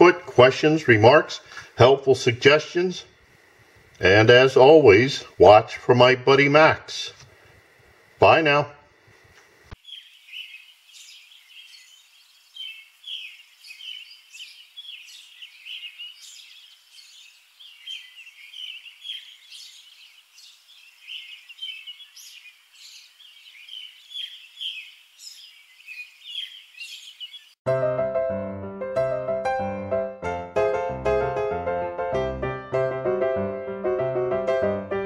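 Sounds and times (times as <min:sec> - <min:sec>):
birds chirping: 0:00.0 - 0:08.7, 0:09.7 - 0:27.6.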